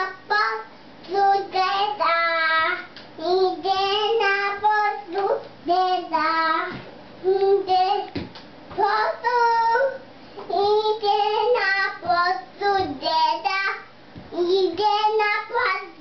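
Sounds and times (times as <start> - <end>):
boy singing: 8.8 - 16.0.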